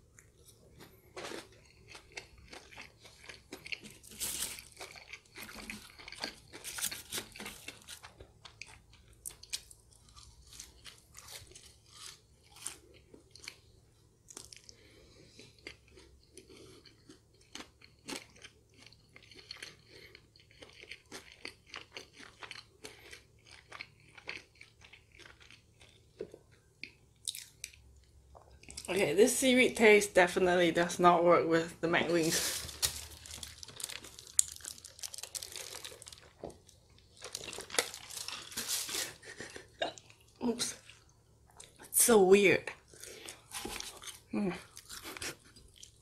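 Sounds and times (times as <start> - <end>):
chewing crispy fried chicken: 0.0 - 28.9, 32.4 - 41.9, 42.7 - 46.0.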